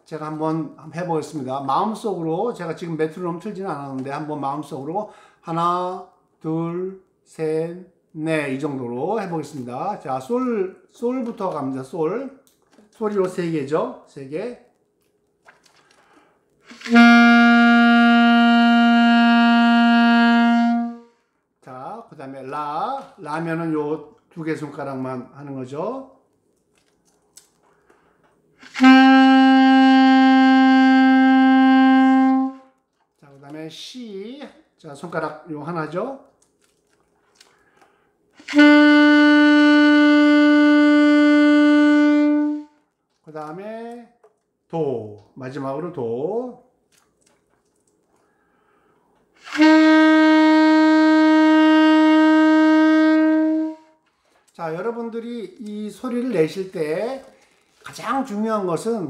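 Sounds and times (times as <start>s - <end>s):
saxophone long held note: 16.7s - 21.2s, 28.6s - 32.8s, 38.4s - 42.8s, 49.4s - 54.0s.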